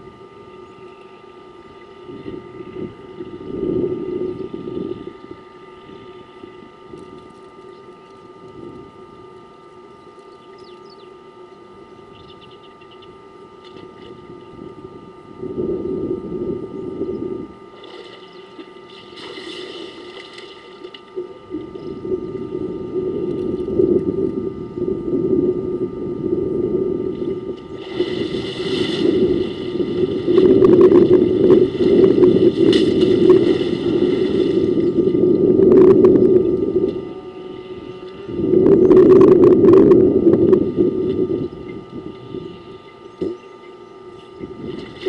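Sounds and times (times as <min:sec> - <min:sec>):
faint high whine: 0:00.0 - 0:45.0
elephant splashing water: 0:17.8 - 0:21.0, 0:27.8 - 0:30.5, 0:31.6 - 0:34.7.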